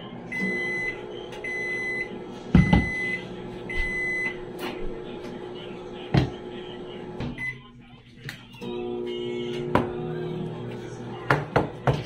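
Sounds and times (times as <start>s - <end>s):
appliance beeping: 0.0s - 11.3s
appliance hum: 0.0s - 12.0s.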